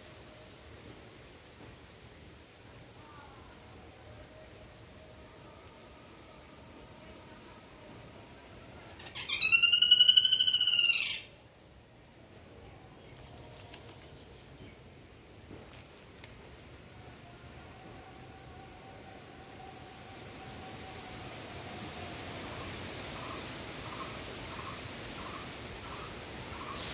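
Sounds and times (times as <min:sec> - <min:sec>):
high-pitched insect drone: 0:00.0 - 0:26.9
trilled animal call: 0:09.0 - 0:11.3.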